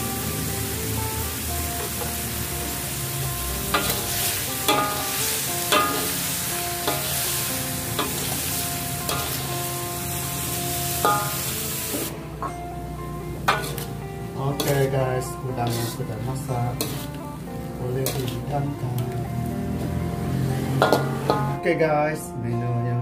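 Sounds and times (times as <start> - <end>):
prawns sizzling in a wok: 0.0 - 12.1, 12.8 - 21.7
sharp clanks on a ringing wok: 3.7 - 4.0, 4.6 - 5.1, 5.7 - 6.2, 9.1 - 9.4, 11.0 - 11.5, 13.5 - 13.9, 20.8 - 21.6
metal spatula scraping a wok: 3.7 - 7.4, 8.0 - 9.5, 13.5 - 14.0, 14.6 - 15.0, 15.6 - 17.2, 18.0 - 18.5.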